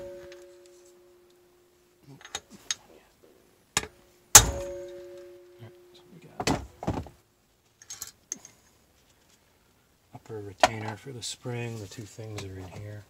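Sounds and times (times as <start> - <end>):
sharp metallic ringing hit: 0.0 - 1.2, 4.3 - 6.3.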